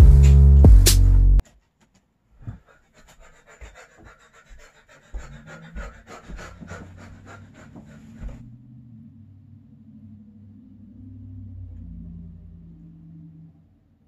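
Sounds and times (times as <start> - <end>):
soft thumps of movement: 5.2 - 8.6.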